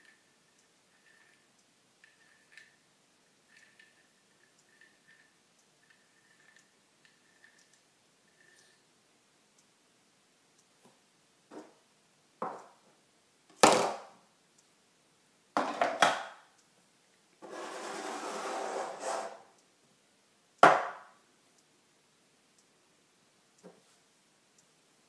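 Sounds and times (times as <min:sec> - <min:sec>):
scraping rub: 0:17.4 - 0:19.5.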